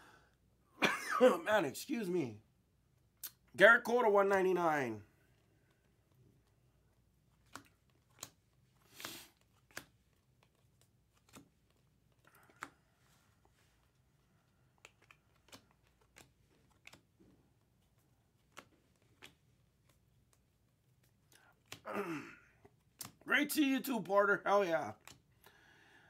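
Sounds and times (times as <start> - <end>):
trading cards clicking: 7.3 - 17.2, 17.8 - 21.8, 22.6 - 23.6, 24.9 - 25.5.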